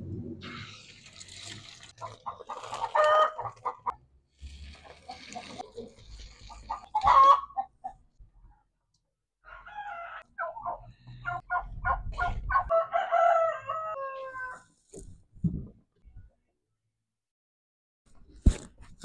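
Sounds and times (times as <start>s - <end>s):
chickens clucking: 2.0s - 4.0s, 4.8s - 8.1s, 10.2s - 12.7s
rooster crowing: 9.4s - 10.3s, 12.6s - 14.6s.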